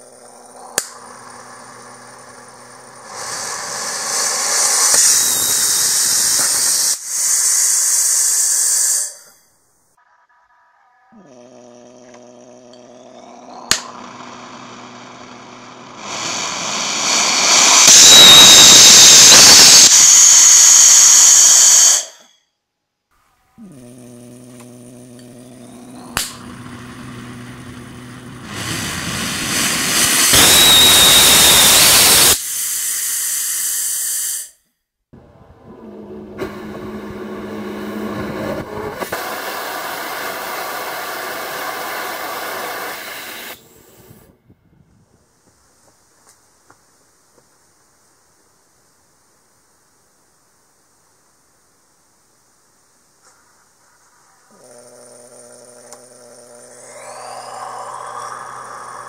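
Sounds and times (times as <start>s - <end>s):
rocket engine loud hiss: 0.0s - 9.4s, 15.2s - 22.3s, 25.8s - 34.6s, 35.2s - 44.3s, 56.7s - 59.0s
quieter steady rocket hiss: 0.0s - 9.8s, 15.7s - 22.4s, 23.2s - 34.6s, 38.0s - 44.3s, 45.1s - 59.0s.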